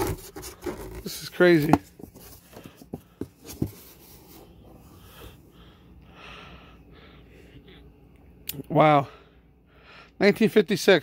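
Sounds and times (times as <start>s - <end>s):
knocks and scrapes on cardboard box: 0.0s - 4.5s
cardboard rubbing and scratching: 0.0s - 4.6s.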